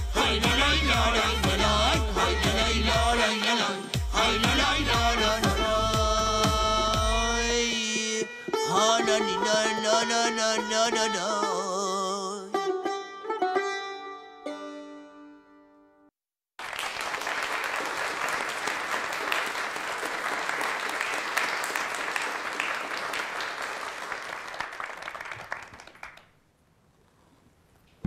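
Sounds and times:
plucked-string music: 7.5s - 16.1s
audience applauding: 16.6s - 26.4s.

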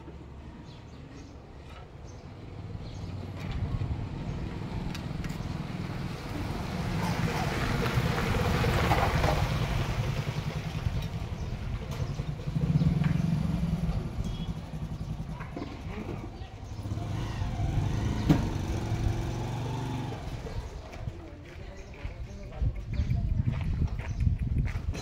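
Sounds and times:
vehicle engine running: 2.1s - 21.1s.

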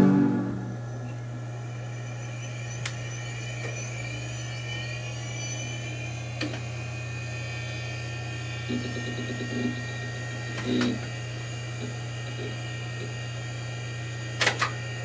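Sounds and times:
computer fan and drive whir: 0.0s - 15.0s
faint high whines: 0.0s - 15.0s
low hum: 0.0s - 15.0s.

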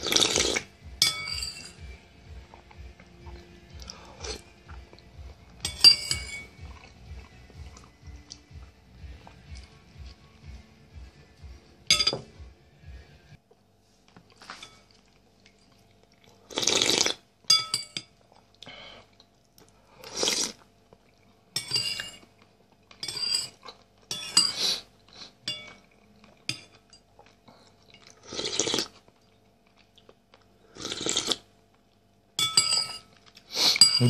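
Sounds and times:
slurping soup: 0.0s - 0.7s, 16.3s - 17.2s, 20.0s - 20.7s, 28.0s - 29.0s, 30.7s - 31.5s
spoon clinking on a bowl: 1.0s - 1.9s, 5.6s - 6.6s, 11.9s - 12.3s, 17.5s - 18.2s, 21.6s - 22.3s, 23.0s - 24.6s, 25.4s - 27.1s, 32.4s - 33.2s, 33.8s - 34.0s.

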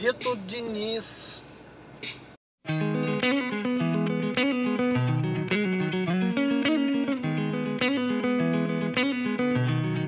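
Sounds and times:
instrumental music with beat: 2.0s - 10.0s.

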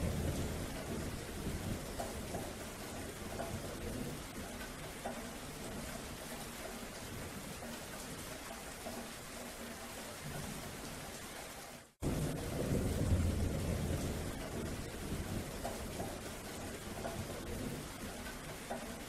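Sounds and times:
thunder rumbling: 0.0s - 4.9s, 12.0s - 18.6s
steady rain falling: 0.0s - 19.0s.

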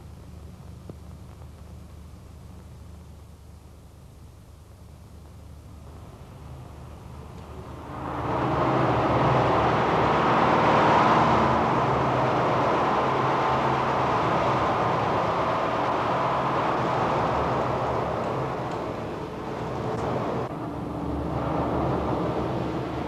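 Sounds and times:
low hum: 0.0s - 23.0s
machinery rushing noise: 5.9s - 23.0s.

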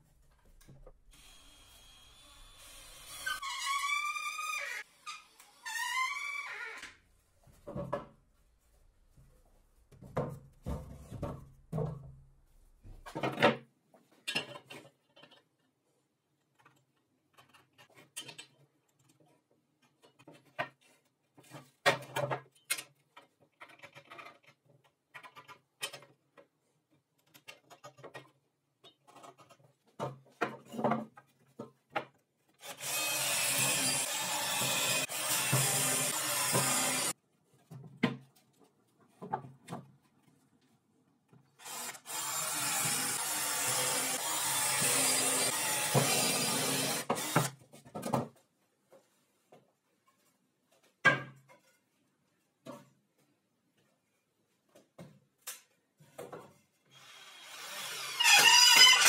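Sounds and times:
cordless drill boring into board: 1.1s - 6.2s, 32.6s - 37.1s, 41.6s - 47.6s, 57.0s - 59.0s.

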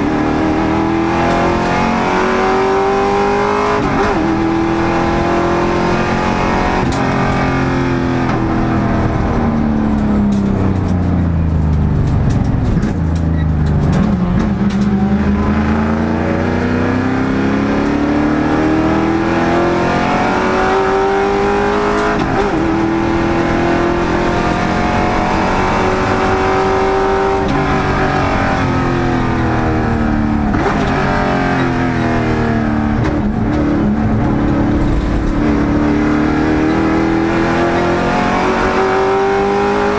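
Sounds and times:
race car engine accelerating: 0.0s - 39.9s.

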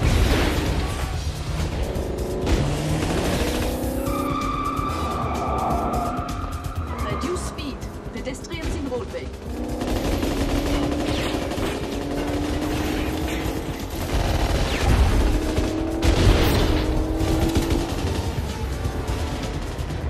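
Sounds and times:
rapid automatic gunfire: 2.6s - 3.8s, 8.7s - 20.0s.

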